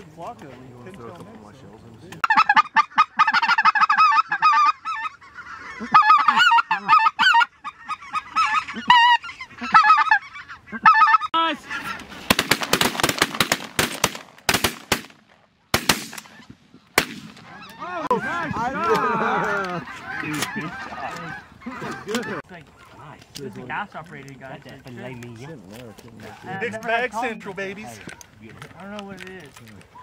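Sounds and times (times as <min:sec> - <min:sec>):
goose calls honking: 0:02.2 - 0:12.2, 0:17.4 - 0:23.0.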